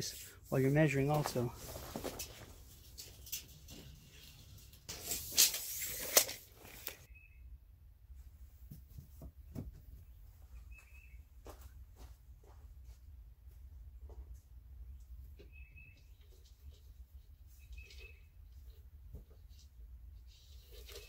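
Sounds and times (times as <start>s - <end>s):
clothing rustling against microphone: 0.0s - 4.2s.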